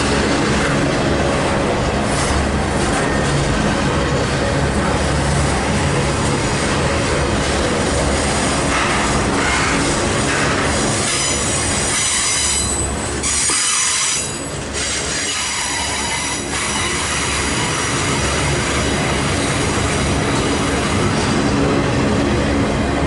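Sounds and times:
train rumble: 0.0 - 23.0
train wheels squealing on rail: 10.7 - 20.7.

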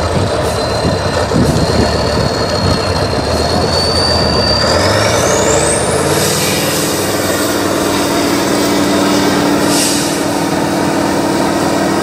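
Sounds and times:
high whine: 0.0 - 12.0
truck diesel engine under load: 0.0 - 12.0.

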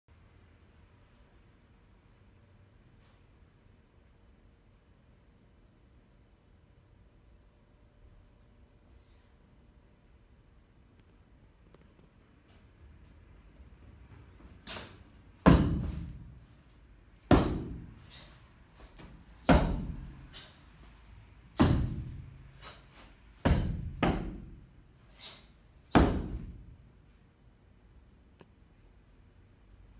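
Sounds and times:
heavy foot stamps on floor: 15.4 - 16.4, 17.3 - 18.0, 18.8 - 20.2, 21.6 - 22.3, 23.4 - 24.5, 26.0 - 26.6.

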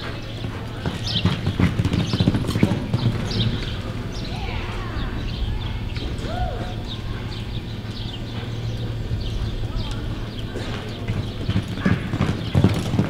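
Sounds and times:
horse sliding on dirt: 0.0 - 4.3, 9.2 - 13.0
horse hoofbeats on dirt: 0.0 - 13.0.

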